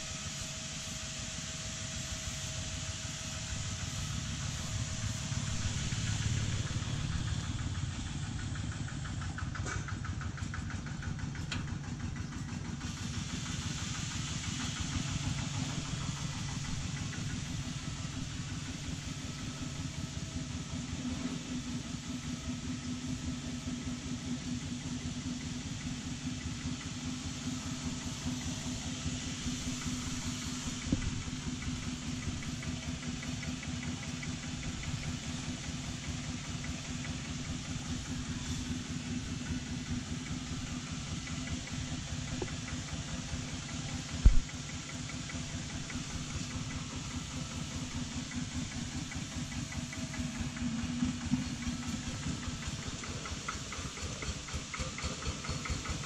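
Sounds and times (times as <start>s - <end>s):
diesel engine idling: 0.0s - 56.0s
light thump: 44.2s - 44.5s.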